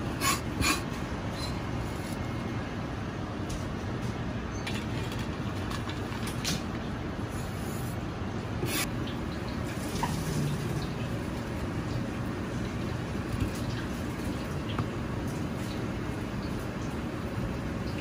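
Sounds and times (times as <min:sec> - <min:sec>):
kitchen rumble and hiss: 0:00.0 - 0:18.0
cleaver scraping cutting board: 0:08.6 - 0:08.9.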